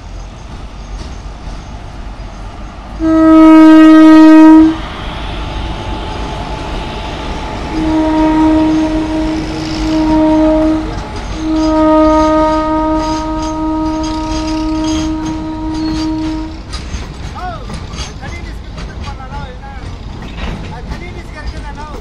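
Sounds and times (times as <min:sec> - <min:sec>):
locomotive passing: 0:00.0 - 0:22.0
locomotive air horn blasts: 0:03.0 - 0:04.8, 0:07.6 - 0:16.7.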